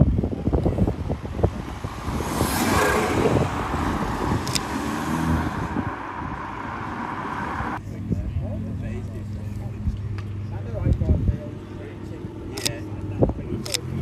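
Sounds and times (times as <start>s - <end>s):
car exhaust accelerating: 0.0s - 7.8s
car rushing past: 0.9s - 7.8s.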